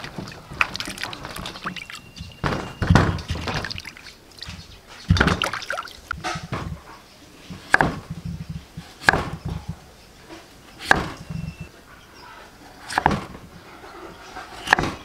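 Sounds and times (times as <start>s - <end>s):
knife chopping on wooden board: 7.5s - 9.8s, 10.8s - 11.6s, 14.6s - 15.0s.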